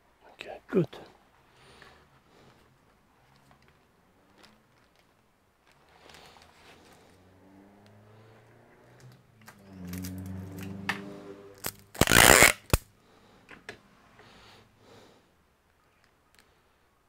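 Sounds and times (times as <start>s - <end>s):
loud rasping crunch: 11.6s - 12.9s.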